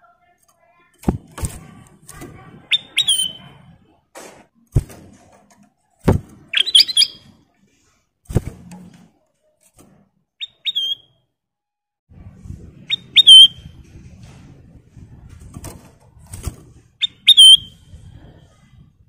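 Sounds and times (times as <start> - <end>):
bird whistled calls: 2.7 - 3.4, 6.5 - 7.3, 10.4 - 11.2, 12.9 - 13.6, 17.0 - 17.8.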